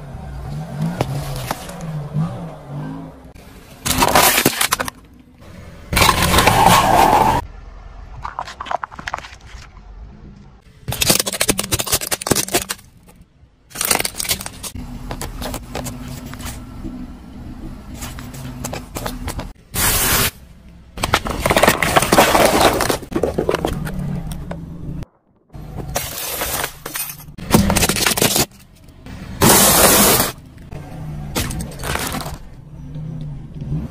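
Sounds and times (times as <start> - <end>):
tyre crushing plastic objects: 3.8 - 5.2, 5.9 - 7.4, 8.2 - 9.8, 10.8 - 16.6, 21.0 - 24.5, 25.7 - 28.8, 29.4 - 30.4, 31.3 - 32.6
low engine hum: 14.7 - 19.6.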